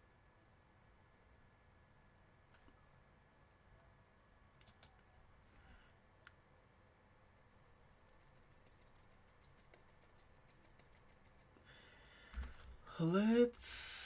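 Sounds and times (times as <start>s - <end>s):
mouse click: 4.6s - 5.1s
quick light ticks: 8.0s - 11.6s.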